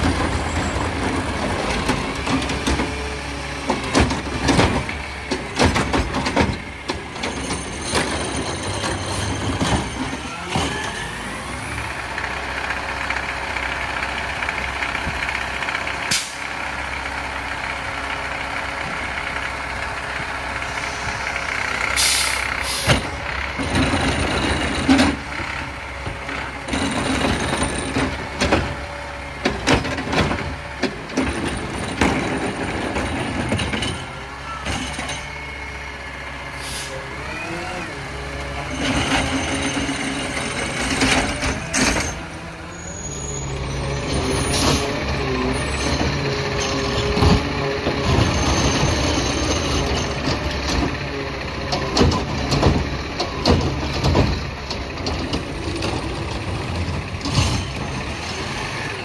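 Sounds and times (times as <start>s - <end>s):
diesel engine running: 0.0s - 59.0s
cart bangs and clatters: 3.7s - 10.8s, 26.6s - 35.3s, 51.8s - 58.9s.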